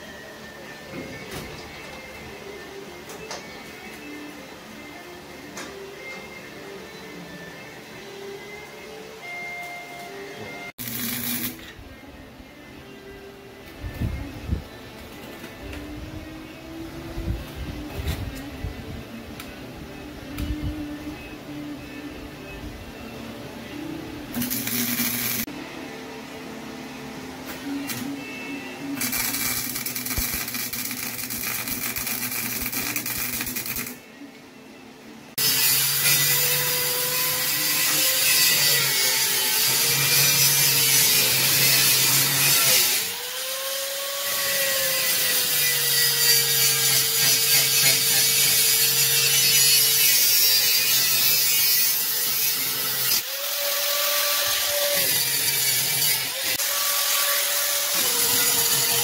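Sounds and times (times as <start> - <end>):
angle grinder on steel: 10.8 - 11.7, 24.4 - 25.5, 29.0 - 34.0, 35.4 - 59.0.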